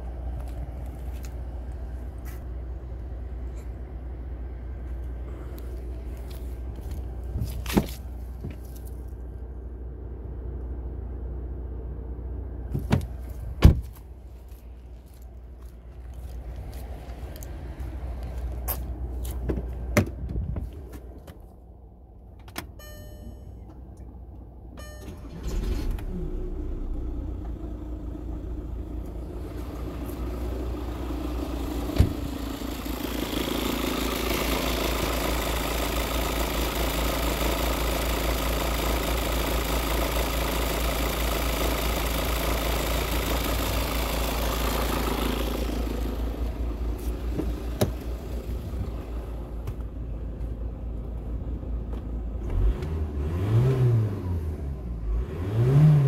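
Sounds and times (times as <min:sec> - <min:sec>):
diesel engine idling: 0:00.0 - 0:52.4.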